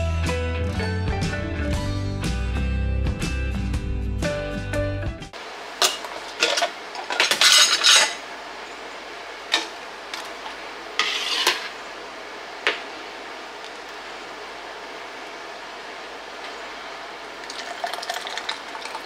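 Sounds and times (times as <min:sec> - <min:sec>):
utensils and dishes clinking: 0:05.8 - 0:08.3, 0:09.5 - 0:10.3, 0:11.0 - 0:11.8.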